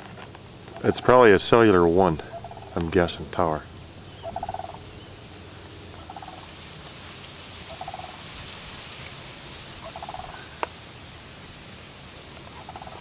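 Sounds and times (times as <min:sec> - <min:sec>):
steady hiss: 0:00.0 - 0:13.0
ducks quacking: 0:00.7 - 0:06.5, 0:09.8 - 0:10.6.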